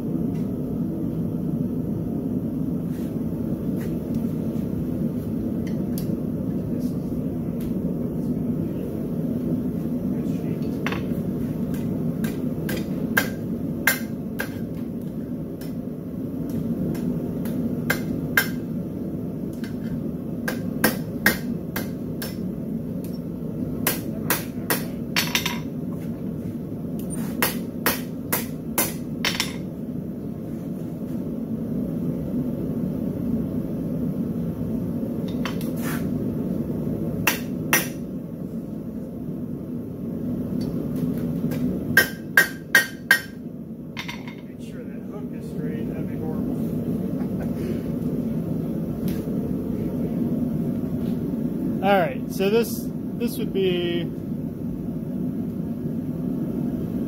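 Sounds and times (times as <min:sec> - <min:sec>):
hammer striking steel on anvil: 0:12.2 - 0:14.7, 0:16.9 - 0:18.6, 0:20.4 - 0:22.4, 0:27.4 - 0:29.6, 0:37.2 - 0:38.0, 0:42.0 - 0:43.4.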